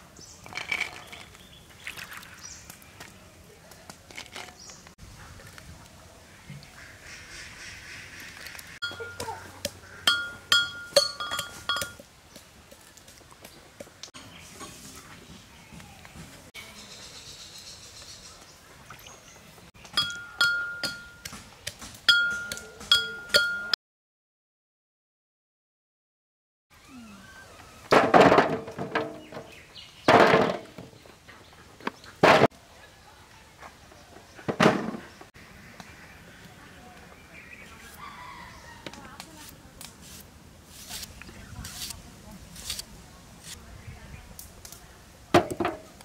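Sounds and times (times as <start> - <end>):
metal cookware ringing hits: 10.1 - 12.0, 20.0 - 21.2.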